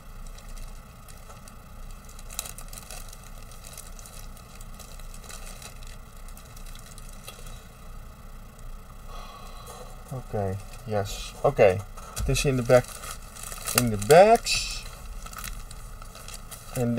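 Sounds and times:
plastic bag crinkling: 0.0 - 7.6, 10.4 - 16.9.

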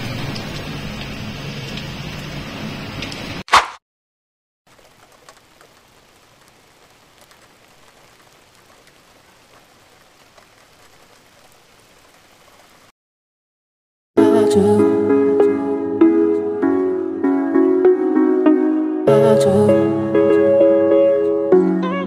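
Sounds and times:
heavy rain pouring: 0.0 - 3.4, 4.7 - 12.9
raindrop ticks: 4.7 - 12.9.

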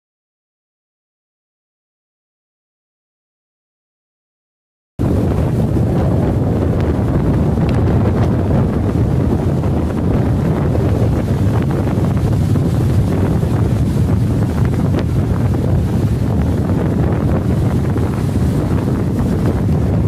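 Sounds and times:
breaking surf: 5.0 - 20.0
strong wind buffeting microphone: 5.0 - 20.0.

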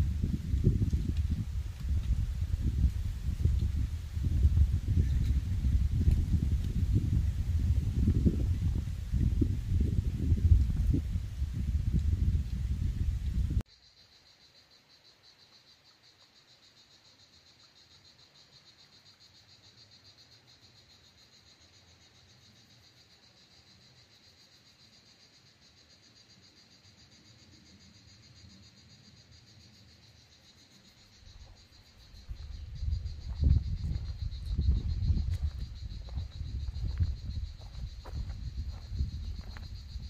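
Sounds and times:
insects buzzing: 0.0 - 40.0.

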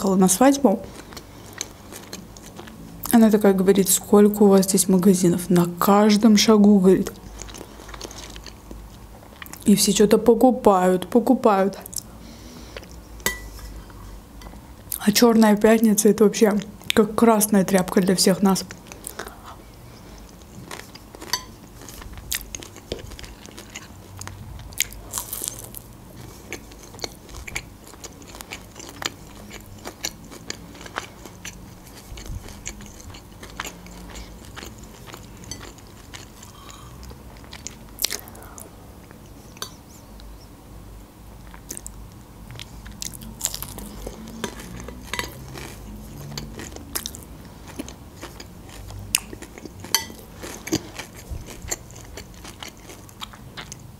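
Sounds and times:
crunching bites and chewing: 20.2 - 38.4, 41.4 - 53.9.

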